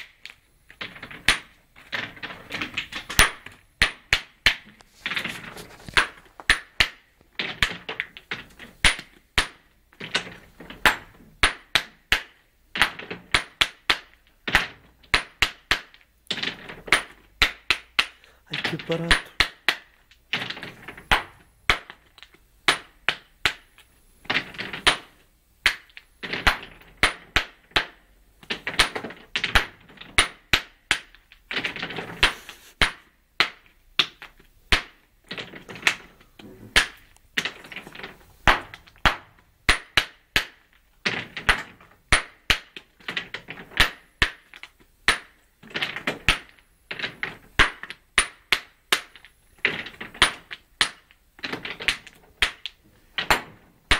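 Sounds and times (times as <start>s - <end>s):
hammer striking stone: 22.7s - 23.6s, 38.5s - 40.6s, 47.6s - 49.2s.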